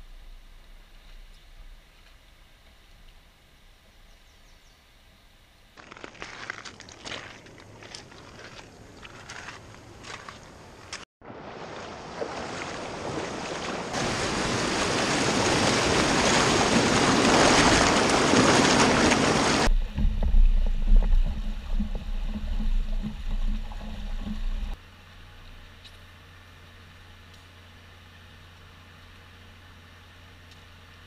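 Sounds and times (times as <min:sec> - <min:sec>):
creek water rushing over rocks: 0:11.3 - 0:24.8
muffled low rumble: 0:19.7 - 0:24.8.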